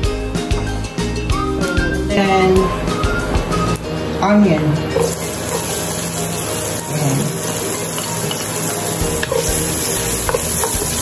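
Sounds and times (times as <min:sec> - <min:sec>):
onion sizzling in hot oil: 0:04.8 - 0:11.0.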